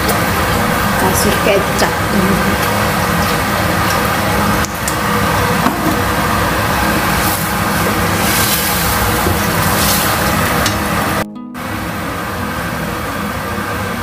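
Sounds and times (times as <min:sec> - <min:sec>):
gas stove rushing with hum: 0:00.0 - 0:11.2
food simmering in frying pan: 0:02.6 - 0:11.2.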